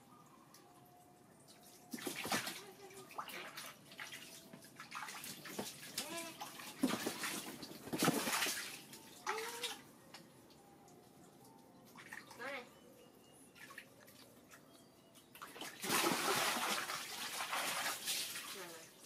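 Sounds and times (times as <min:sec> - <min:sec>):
water splashing in paddling pool: 0:01.5 - 0:09.8, 0:15.4 - 0:19.0.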